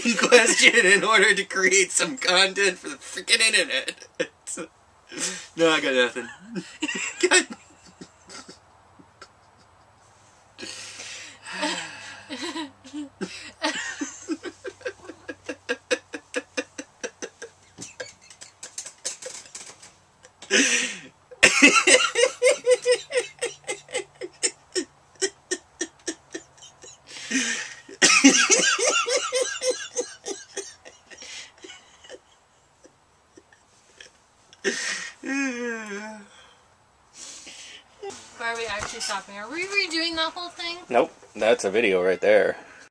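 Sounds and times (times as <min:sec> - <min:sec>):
people laughing uncontrollably: 0:00.0 - 0:01.5, 0:06.2 - 0:09.9, 0:10.7 - 0:36.0
loud breathy gasp: 0:10.6 - 0:12.4.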